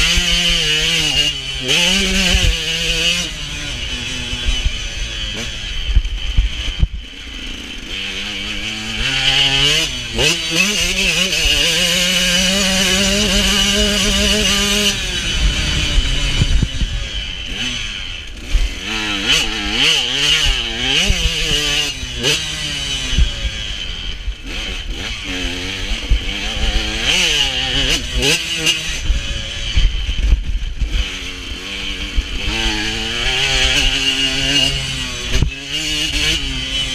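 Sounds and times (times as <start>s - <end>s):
motocross bike engine revving: 0.0s - 36.9s
wind rush: 12.8s - 18.7s.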